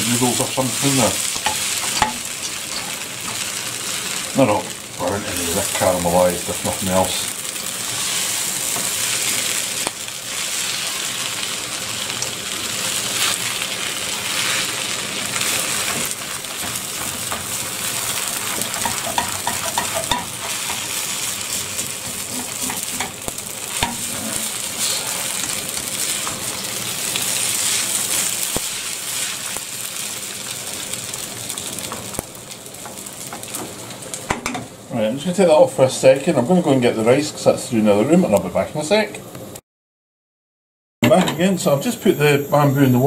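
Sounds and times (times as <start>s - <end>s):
noodles sizzling in a wok: 0.0s - 37.6s
spatula scraping a pan: 7.8s - 9.2s, 15.4s - 26.5s.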